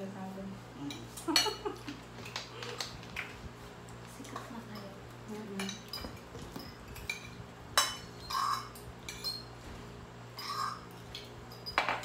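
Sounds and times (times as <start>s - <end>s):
cutlery clinking on plates: 5.6s - 9.5s, 10.4s - 12.0s.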